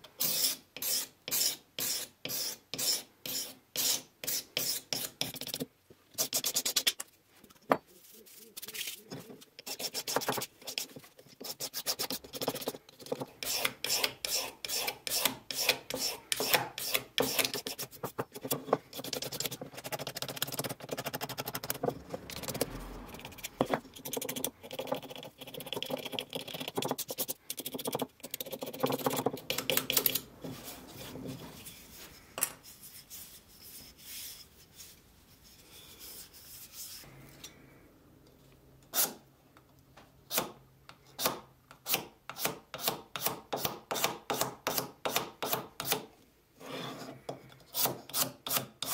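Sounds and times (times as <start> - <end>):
steel tool scraping wood: 0.2 - 5.2.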